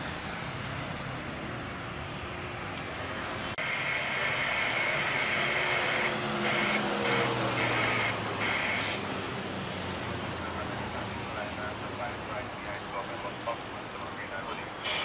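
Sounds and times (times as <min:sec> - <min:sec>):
jet engine whine: 0:03.5 - 0:09.4.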